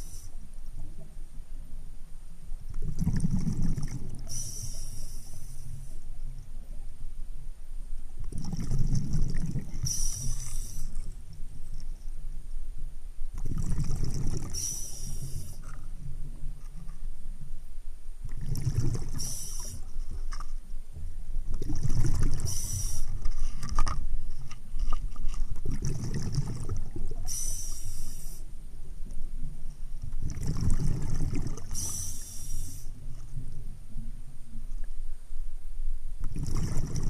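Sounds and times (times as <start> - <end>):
breathing regulator high hiss: 4.3 - 6.1, 9.8 - 11.0, 14.5 - 15.7, 19.2 - 19.9, 22.5 - 23.2, 27.3 - 28.5, 31.7 - 33.0
underwater breathing bubbling rush: 8.3 - 11.2, 13.4 - 15.9, 18.3 - 20.2, 21.6 - 23.9, 25.6 - 28.5, 30.2 - 33.1, 36.3 - 37.0.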